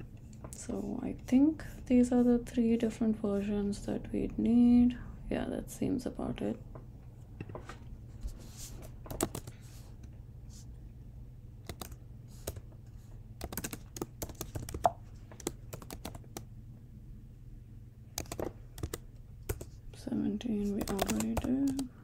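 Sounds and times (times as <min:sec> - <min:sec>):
faint low hum: 0:00.0 - 0:22.0
typing on computer keyboard: 0:09.1 - 0:09.6, 0:11.6 - 0:12.6, 0:13.4 - 0:16.5, 0:18.2 - 0:19.7, 0:20.8 - 0:21.9.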